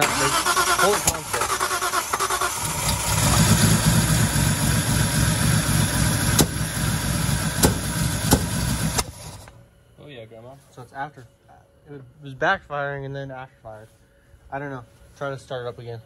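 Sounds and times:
car engine running roughly: 0.0s - 9.5s
engine backfire pops: 6.2s - 6.8s, 7.4s - 9.6s.

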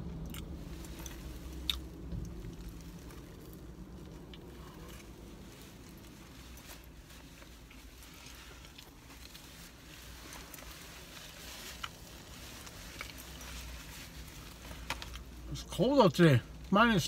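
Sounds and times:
low steady hum: 0.0s - 17.0s
chewing and mouth sounds: 0.1s - 6.1s.

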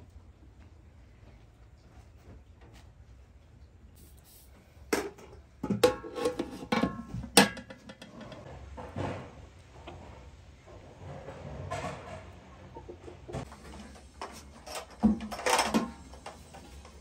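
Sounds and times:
kitchenware clinking and knocking: 5.0s - 9.3s.

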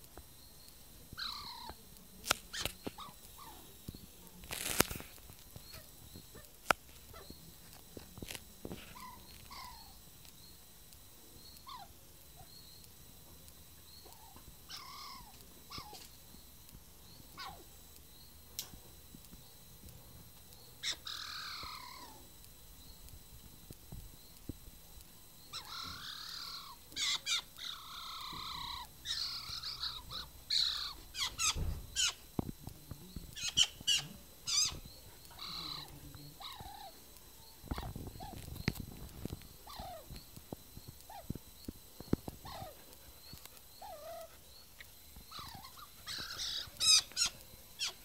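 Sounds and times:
magpie chattering: 1.2s - 1.8s, 14.1s - 16.1s, 20.8s - 22.2s, 25.5s - 32.2s, 33.4s - 37.0s, 42.4s - 48.0s.

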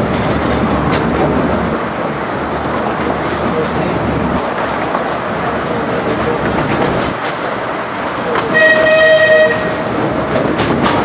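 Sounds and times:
rumble of train wheels on track: 0.0s - 11.0s
train locomotive toot: 8.3s - 10.0s.

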